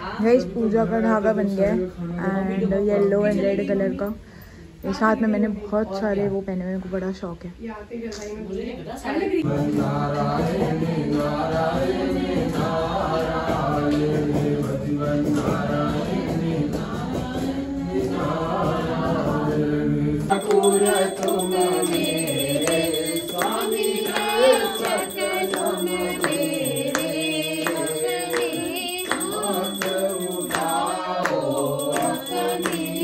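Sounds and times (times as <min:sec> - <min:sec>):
devotional hymn singing: 0:09.4 - 0:33.0
rhythmic sharp strikes: 0:20.3 - 0:33.0.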